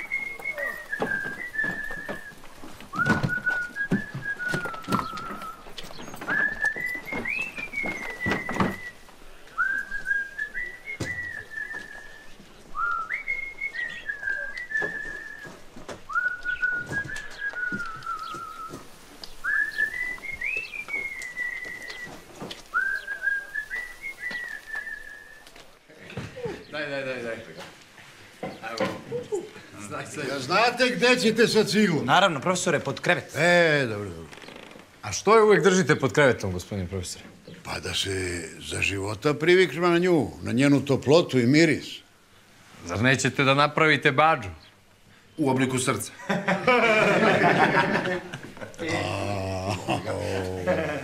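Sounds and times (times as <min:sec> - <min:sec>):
man whistling a tune: 0:00.0 - 0:18.8, 0:19.4 - 0:25.4.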